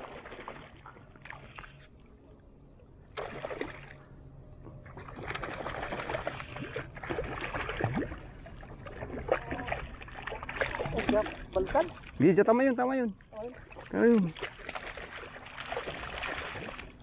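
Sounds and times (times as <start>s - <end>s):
fish splashing in water: 3.1s - 4.0s, 4.8s - 12.2s, 13.6s - 17.0s.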